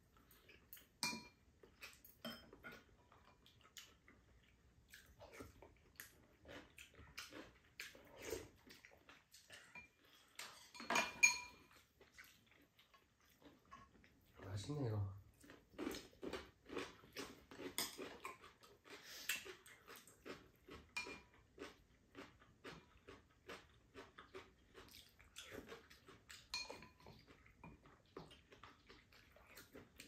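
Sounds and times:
utensils clinking on ceramic bowls: 0:00.3 - 0:02.9, 0:09.6 - 0:11.8, 0:26.5 - 0:27.2.

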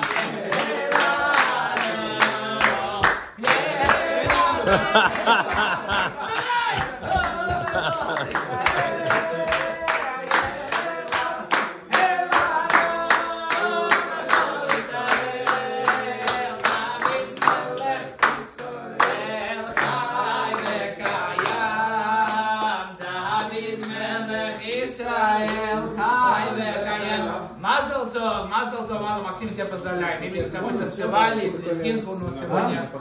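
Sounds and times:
hands clapping in time: 0:00.0 - 0:19.2
men singing together: 0:00.0 - 0:32.9.

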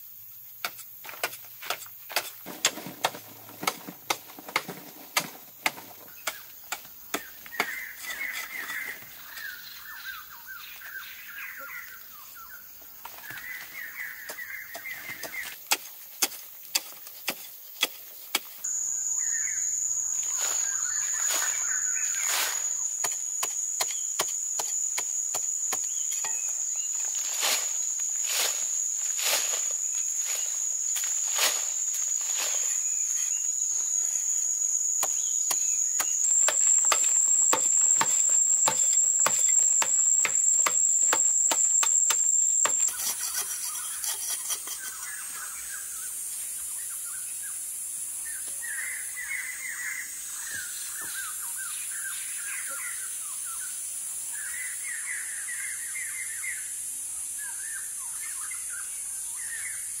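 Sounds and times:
insects droning: 0:00.0 - 1:00.0
birds chirping: 0:06.1 - 0:15.6, 0:18.7 - 0:24.2
digging tool scraping hard earth: 0:42.2 - 0:45.2.

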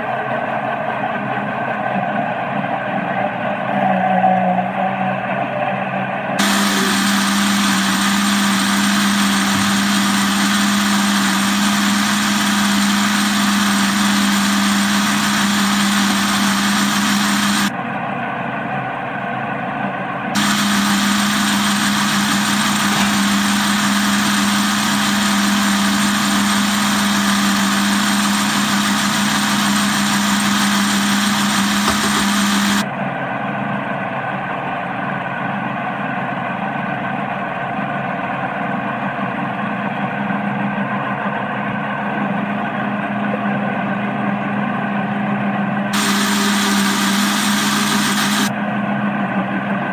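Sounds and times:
blender running: 0:06.4 - 0:17.7, 0:20.4 - 0:32.9, 0:45.9 - 0:48.5.

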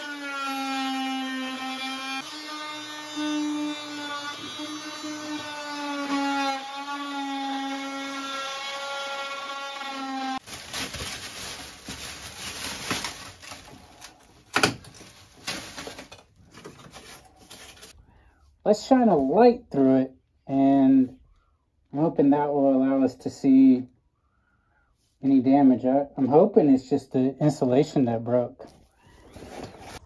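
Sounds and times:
plastic sheeting rustling: 0:10.4 - 0:17.9.

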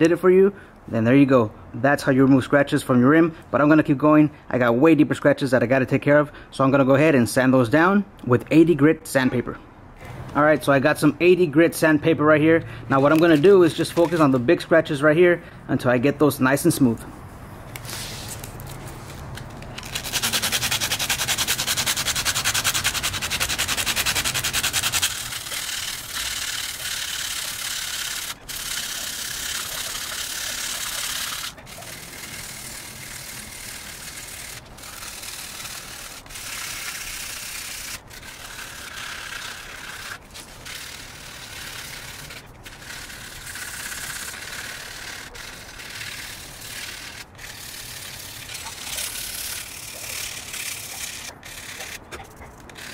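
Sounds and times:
sandpaper rubbing metal rim: 0:12.9 - 0:14.6, 0:17.8 - 0:52.9.

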